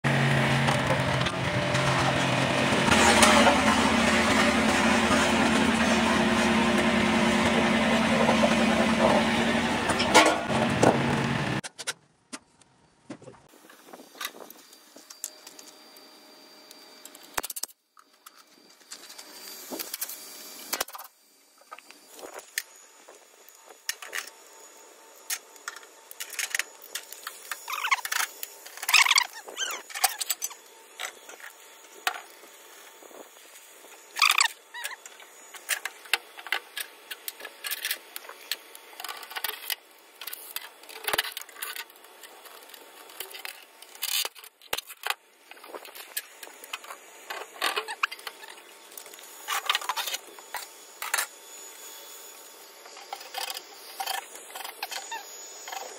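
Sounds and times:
metal scraping: 0.8 - 11.5.

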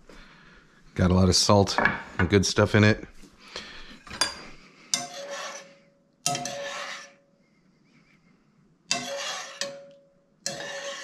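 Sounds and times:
metal spoon scraping saucepan: 4.1 - 7.2, 8.9 - 11.0.

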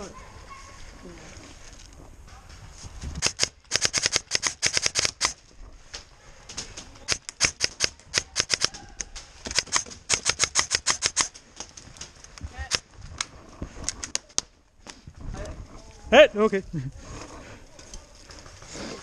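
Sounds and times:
airsoft guns firing: 3.2 - 5.4, 7.0 - 8.8, 9.4 - 11.3.

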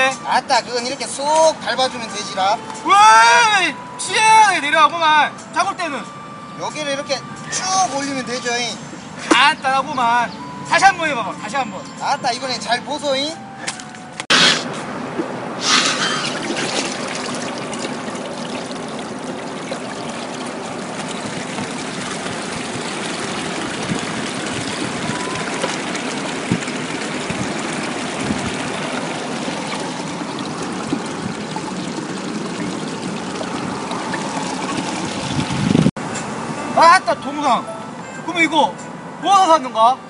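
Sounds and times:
water pouring through drain gate: 15.6 - 35.9.

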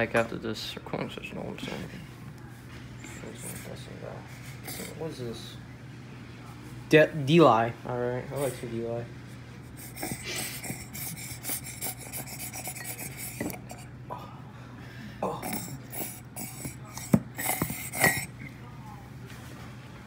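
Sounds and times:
containers rustling and scraping: 9.7 - 13.9, 15.5 - 18.5.

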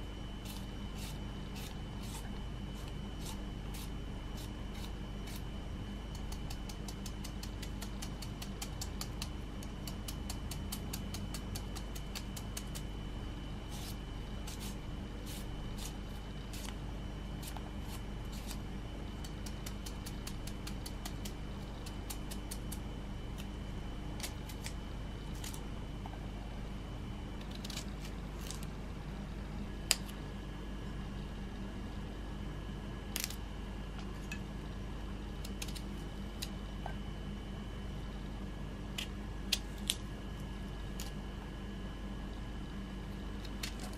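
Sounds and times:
steady low hum: 0.0 - 43.9
knife chopping cucumber: 6.1 - 12.8, 13.7 - 16.8, 19.2 - 22.8.

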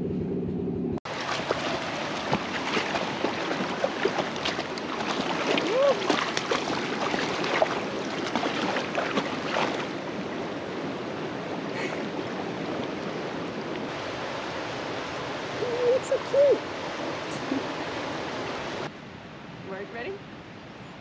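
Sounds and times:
dog splashing through water: 1.1 - 10.0
creek rushing: 1.1 - 18.9.

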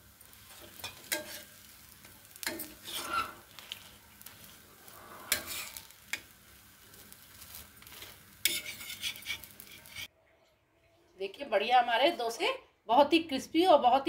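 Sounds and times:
batter sizzling on a griddle: 0.0 - 10.1
metal spatula scraping pan: 0.5 - 1.6, 2.4 - 6.3, 7.4 - 10.1.

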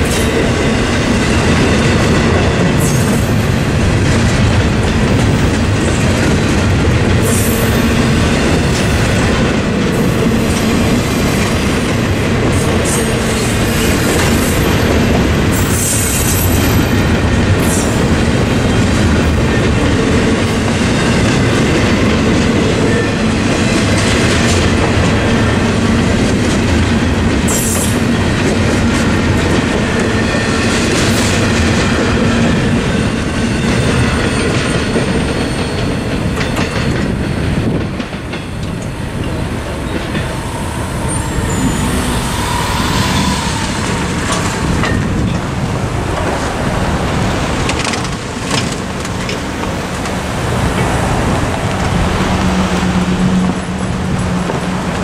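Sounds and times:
freight train rumbling past: 0.0 - 55.0
high wheel squeals: 38.4 - 45.4.

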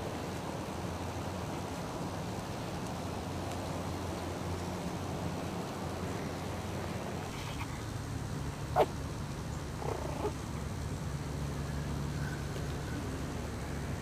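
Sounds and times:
puppy whimpering: 9.8 - 10.4
puppy yelping: 9.8 - 10.4.

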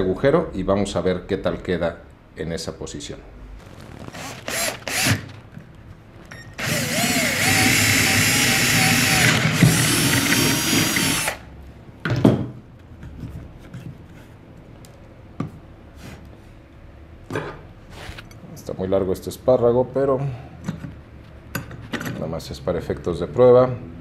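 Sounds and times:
cordless drill boring wood: 3.8 - 5.3, 6.6 - 11.5.

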